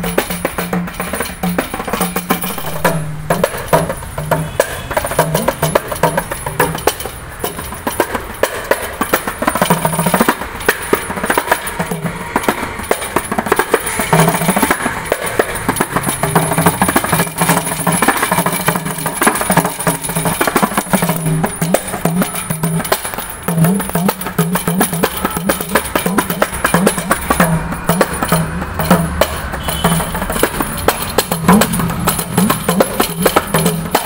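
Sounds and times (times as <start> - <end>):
frame drum with jingles: 0.0 - 34.0.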